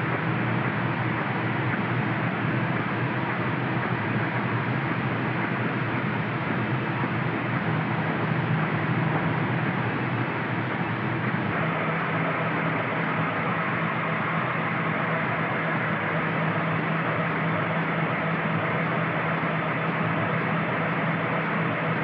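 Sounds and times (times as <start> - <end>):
factory machinery running: 0.0 - 22.0
low hum: 5.6 - 21.9.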